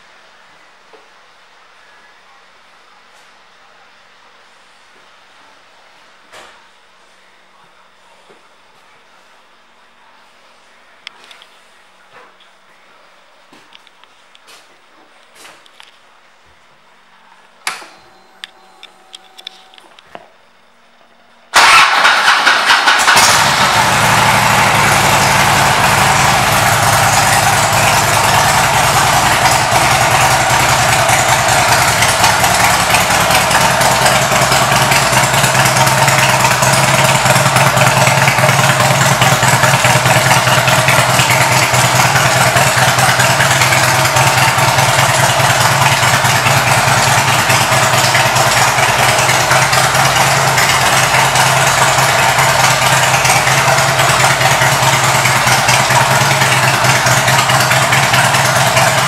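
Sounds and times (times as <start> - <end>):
motorcycle engine idling: 21.6 - 59.0.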